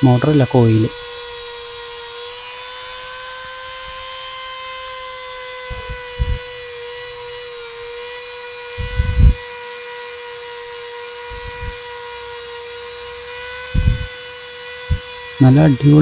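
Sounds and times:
rotary tool whining: 0:00.0 - 0:16.0
low thumps: 0:05.7 - 0:06.5, 0:08.8 - 0:09.4, 0:11.3 - 0:11.8, 0:13.8 - 0:14.1, 0:14.9 - 0:15.1.

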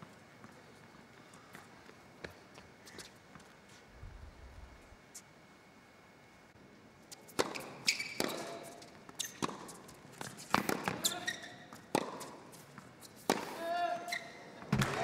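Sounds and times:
tennis ball bouncing and struck: 0:07.4 - 0:08.6, 0:09.2 - 0:09.8, 0:10.4 - 0:11.1, 0:11.9 - 0:12.3, 0:13.2 - 0:13.6.

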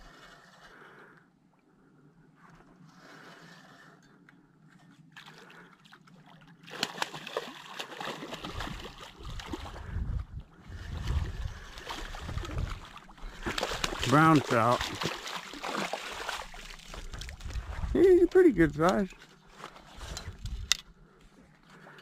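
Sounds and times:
fish splashing and thrashing: 0:04.9 - 0:20.9
low rumble: 0:16.9 - 0:18.2.

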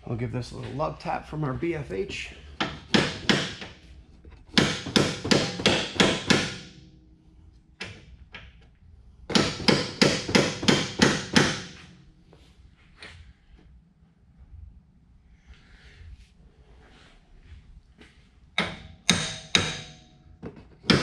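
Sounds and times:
hammer knocking on metal: 0:04.5 - 0:06.6, 0:09.3 - 0:11.8.

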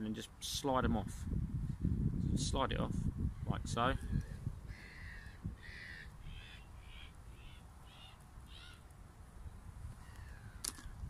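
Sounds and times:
bird giving harsh calls: 0:04.7 - 0:08.9.

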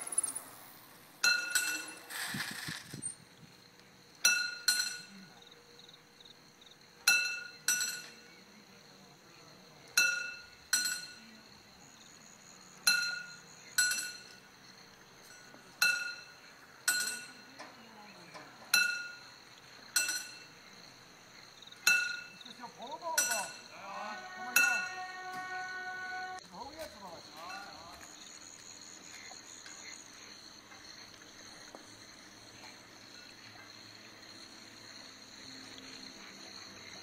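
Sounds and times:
level crossing warning bells: 0:23.2 - 0:26.4.

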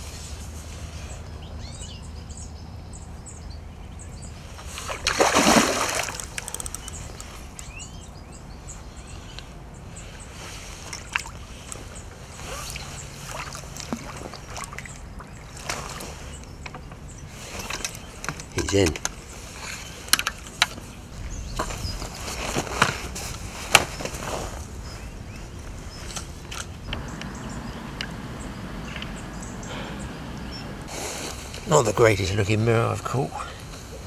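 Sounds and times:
water sloshing: 0:04.6 - 0:07.3, 0:10.6 - 0:21.0
fish splashing in water: 0:04.8 - 0:06.8, 0:12.6 - 0:16.1
faint clicks: 0:06.2 - 0:07.7, 0:28.9 - 0:29.5.

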